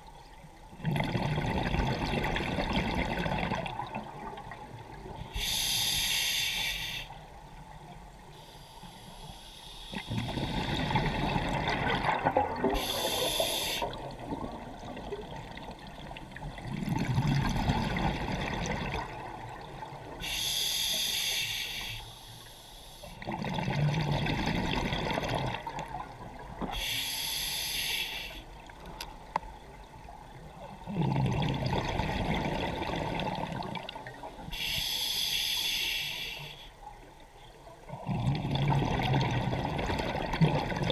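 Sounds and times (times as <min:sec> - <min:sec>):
regulator inhale hiss: 0:05.3 - 0:07.3, 0:08.3 - 0:10.6, 0:12.8 - 0:14.0, 0:20.2 - 0:23.2, 0:26.7 - 0:28.5, 0:34.5 - 0:36.8
bubbling exhale underwater: 0:10.0 - 0:15.5, 0:30.8 - 0:34.0, 0:37.9 - 0:40.9.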